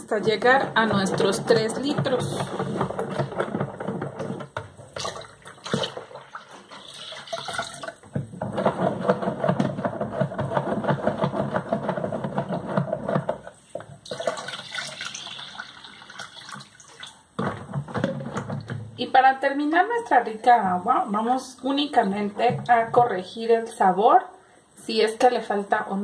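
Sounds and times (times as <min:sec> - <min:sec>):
water pouring into pitcher: 0:04.9 - 0:08.2, 0:14.0 - 0:17.4.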